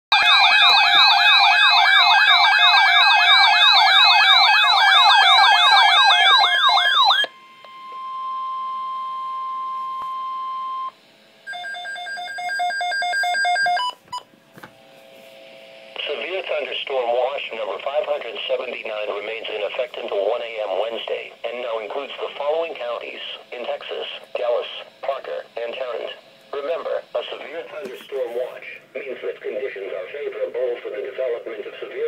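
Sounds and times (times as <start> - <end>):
electronic alarm warbles: 0.1 - 10.9.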